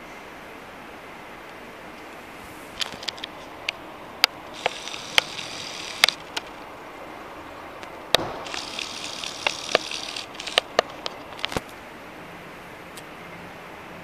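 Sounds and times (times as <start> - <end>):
camera zoom motor whirring: 4.5 - 6.5, 8.3 - 11.6.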